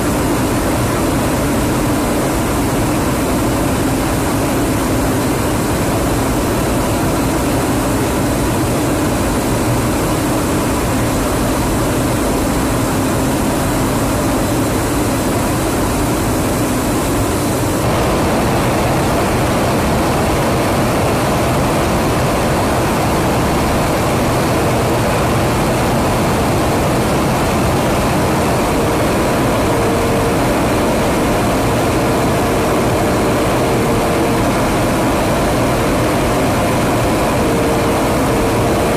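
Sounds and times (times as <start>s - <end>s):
aircraft engines droning: 0.0s - 38.9s.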